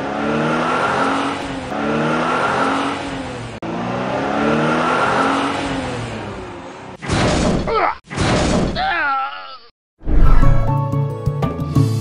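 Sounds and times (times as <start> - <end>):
car engine revving: 0.0 - 7.0.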